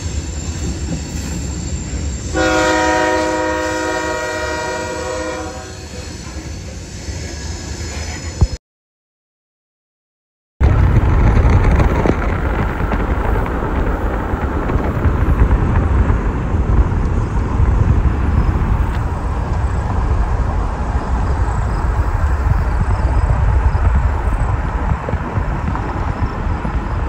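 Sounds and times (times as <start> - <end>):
road and wind noise in car: 10.6 - 27.0.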